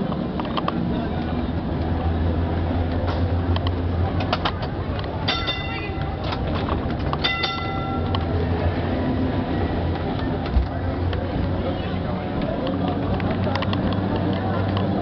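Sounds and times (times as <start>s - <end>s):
tram rumbling on tracks: 0.0s - 15.0s
tram warning bell: 5.2s - 6.4s, 7.2s - 8.5s.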